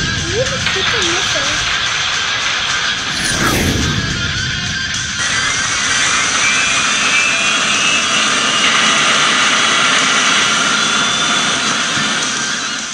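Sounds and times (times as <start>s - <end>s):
jet engine whine rising: 2.9s - 5.4s.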